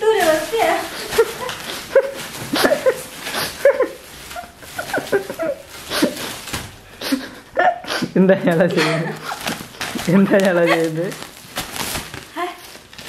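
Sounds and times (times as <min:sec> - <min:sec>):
plastic cling film crinkling: 0:00.0 - 0:07.5, 0:08.4 - 0:13.0.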